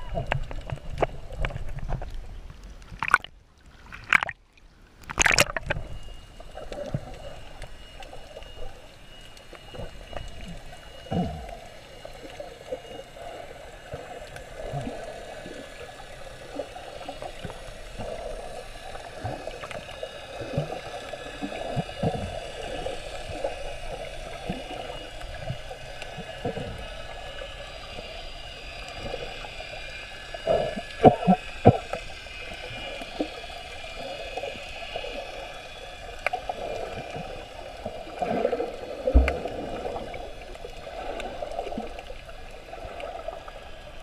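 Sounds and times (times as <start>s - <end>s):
muffled underwater wash: 0.0s - 44.0s
small clicks underwater: 0.0s - 44.0s
water splashing against camera: 0.0s - 44.0s.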